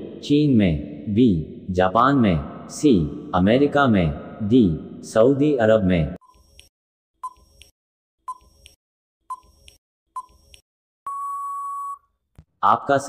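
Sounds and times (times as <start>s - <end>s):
long steady beep: 11.1s - 12.1s.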